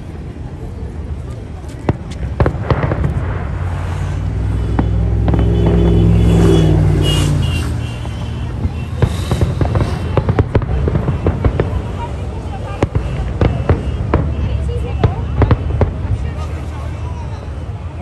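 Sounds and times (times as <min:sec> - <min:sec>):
fireworks bangs and crackles: 0:00.0 - 0:18.0
low droning sound: 0:02.6 - 0:11.4.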